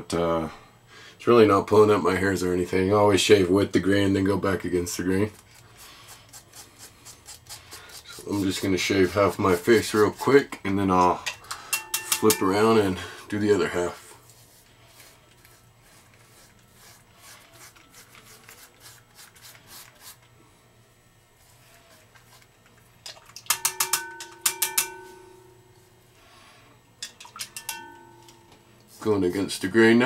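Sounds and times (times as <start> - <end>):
razor scraping stubble: 5.0 - 11.0, 13.4 - 20.4
razor knocking against bowl rim: 11.7 - 12.6, 23.4 - 25.6.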